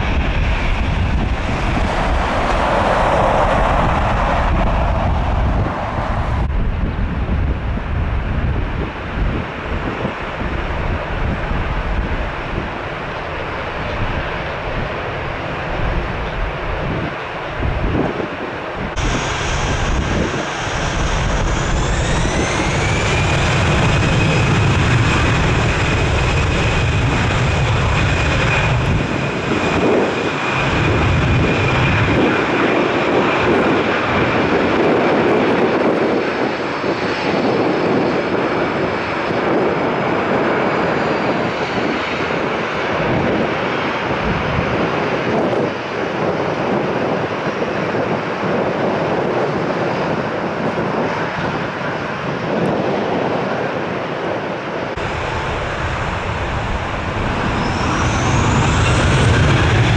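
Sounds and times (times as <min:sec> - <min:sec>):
deep engine rumble: 0:00.0 - 0:09.2, 0:18.9 - 0:34.4, 0:54.9 - 0:59.9
jet engines whining: 0:00.0 - 0:59.9.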